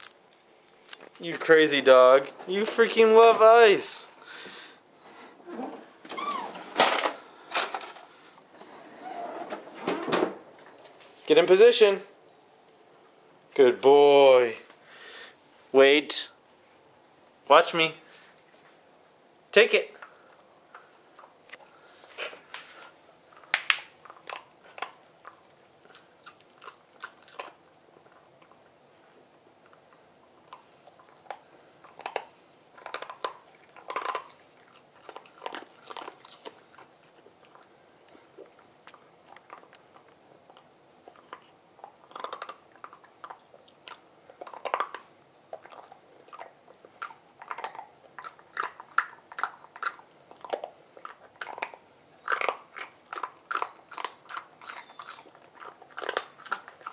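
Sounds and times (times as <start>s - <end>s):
dog crunching ice cube: 23.4s - 28.8s, 29.6s - 56.9s.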